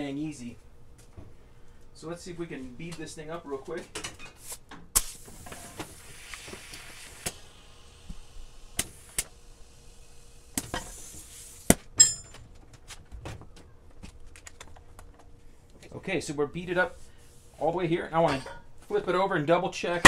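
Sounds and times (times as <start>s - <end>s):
compressed air hissing from hose: 4.4s - 11.7s.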